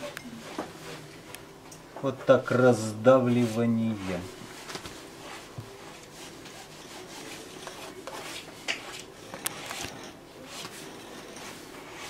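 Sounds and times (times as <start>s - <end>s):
palette knife scraping paint: 5.2s - 12.0s.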